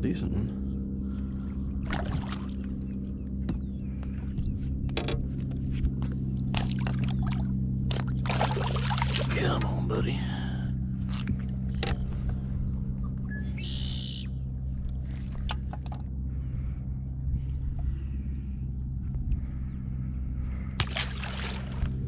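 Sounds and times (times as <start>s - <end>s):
low mechanical hum: 0.0s - 22.0s
fish splashing into water: 1.8s - 2.8s, 6.5s - 9.4s, 20.8s - 22.0s
handling knocks and clicks: 4.8s - 6.1s.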